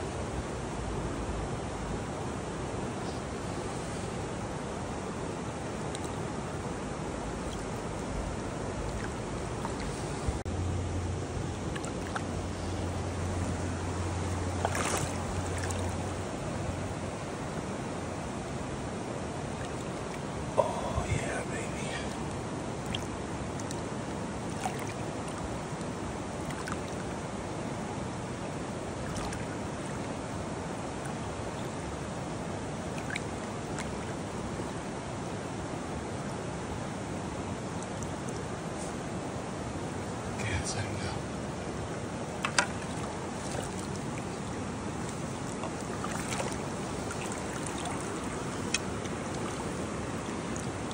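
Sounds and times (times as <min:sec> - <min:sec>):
creek water rushing over rocks: 0:00.1 - 0:50.9
water splash: 0:11.6 - 0:12.4, 0:14.3 - 0:16.1, 0:24.5 - 0:25.4, 0:26.4 - 0:27.1, 0:29.0 - 0:30.1, 0:42.4 - 0:50.9.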